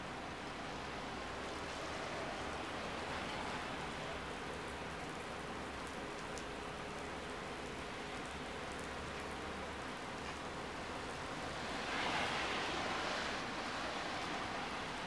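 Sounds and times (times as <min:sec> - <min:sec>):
car tyres hissing on wet road: 0:00.0 - 0:05.7, 0:09.8 - 0:15.0
rain on pavement: 0:00.0 - 0:15.0.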